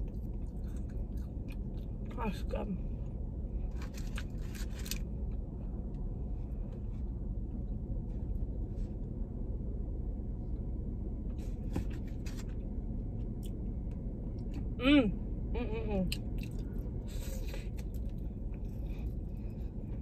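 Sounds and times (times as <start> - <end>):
chewing and mouth clicks: 0.0 - 2.2, 16.1 - 19.2.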